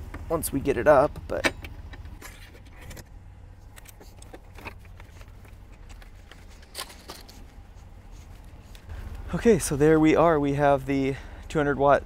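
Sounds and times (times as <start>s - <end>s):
low steady rumble: 0.0s - 12.0s
small clicks and light scraping: 3.6s - 9.2s.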